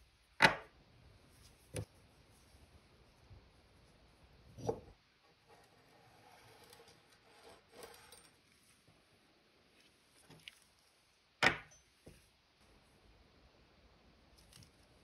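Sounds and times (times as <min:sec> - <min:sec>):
faint handling and rubbing: 0:01.2 - 0:11.2.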